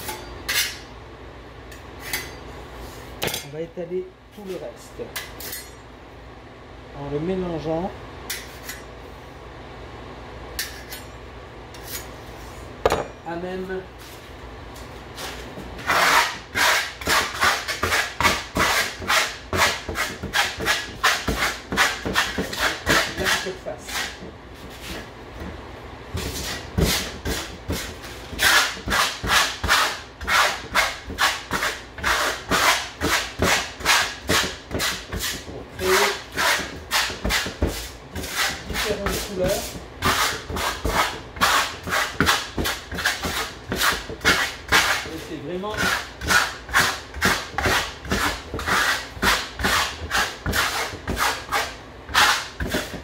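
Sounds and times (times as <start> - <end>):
spatula scraping plaster on board: 15.2 - 25.1, 26.2 - 53.0.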